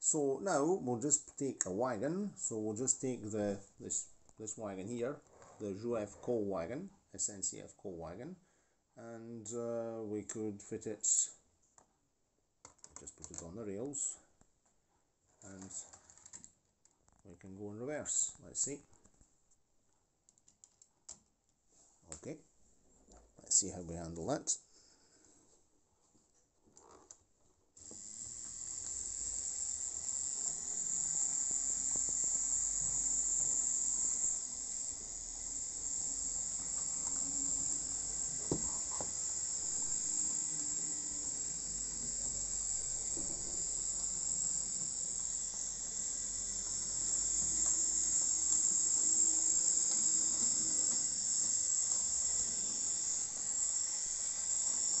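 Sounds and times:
model train motor whirring: 27.8s - 55.0s.

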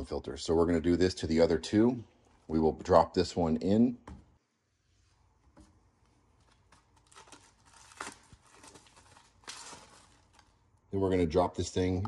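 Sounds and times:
plastic wrapping crinkling: 6.4s - 10.8s.

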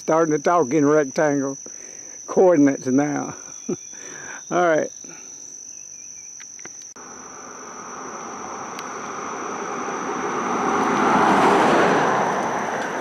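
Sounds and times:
insects droning: 0.0s - 13.0s
car passing by: 7.0s - 13.0s.

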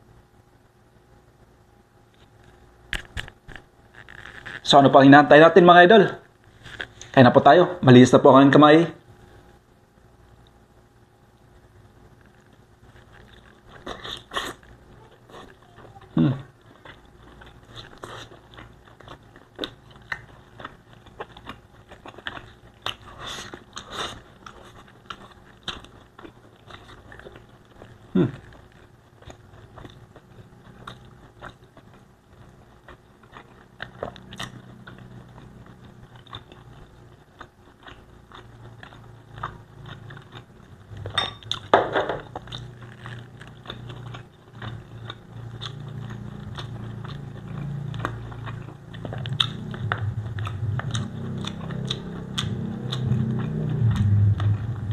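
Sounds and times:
close-up chewing with mouth clicks: 12.1s - 41.7s, 42.3s - 54.9s.

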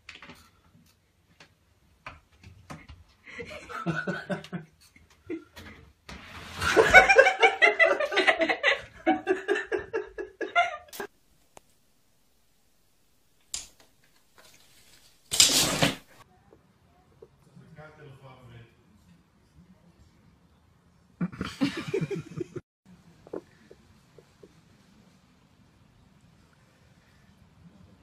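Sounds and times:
person laughing hard: 21.2s - 22.6s.

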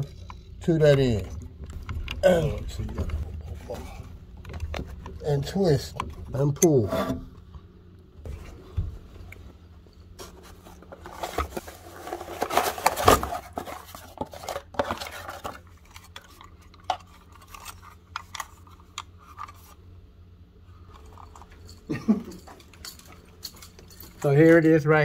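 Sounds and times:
steady low hum: 0.0s - 25.0s
cardboard box rustling: 10.2s - 16.3s
clicks and clatter of handling: 10.2s - 19.8s, 20.9s - 24.5s.

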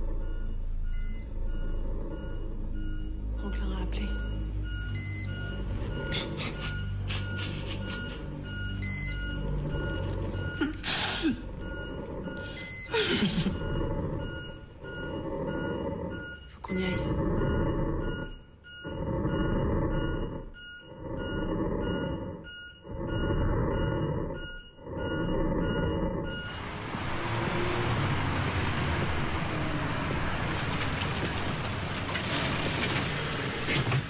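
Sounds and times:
machine rhythmic whoosh: 0.0s - 30.5s
car traffic roar: 24.8s - 34.0s.

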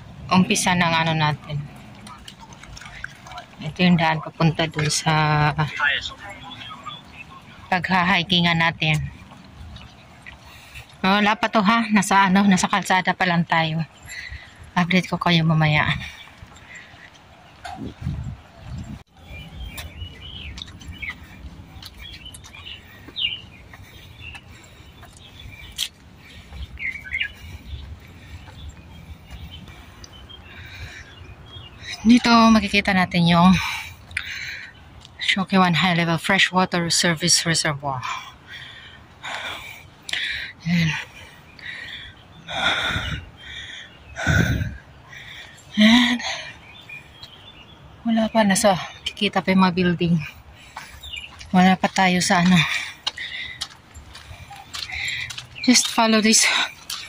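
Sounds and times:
small birds chirping: 0.0s - 57.0s
heavy breathing: 9.1s - 11.1s, 13.9s - 14.8s, 15.9s - 32.1s, 38.0s - 47.7s, 50.2s - 51.6s, 52.3s - 57.0s.

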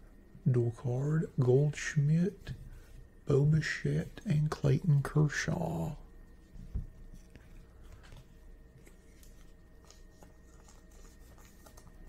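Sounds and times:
cardboard cards rustling and clicking: 6.6s - 12.0s.

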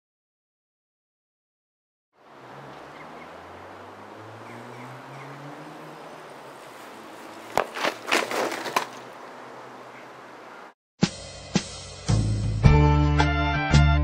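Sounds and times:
bicycle clattering on road: 6.4s - 9.3s.

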